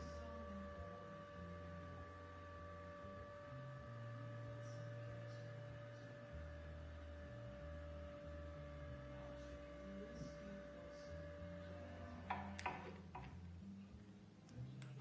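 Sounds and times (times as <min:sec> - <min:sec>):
small gear motor humming: 0:00.0 - 0:13.4.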